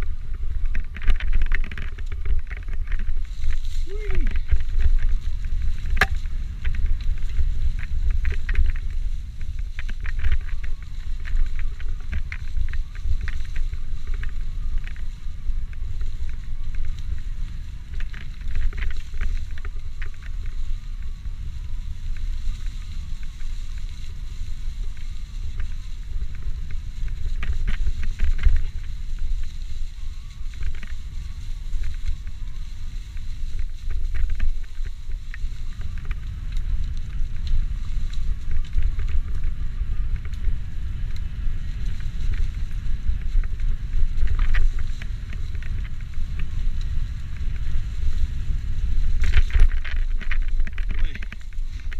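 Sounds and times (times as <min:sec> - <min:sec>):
bike rattling and clicking: 0:00.0 - 0:51.9
wind rumbling on microphone: 0:00.0 - 0:51.9.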